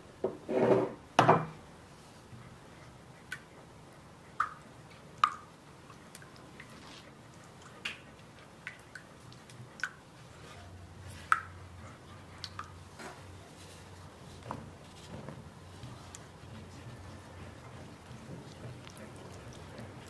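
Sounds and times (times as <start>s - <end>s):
spatula swishing liquid: 6.0s - 20.0s.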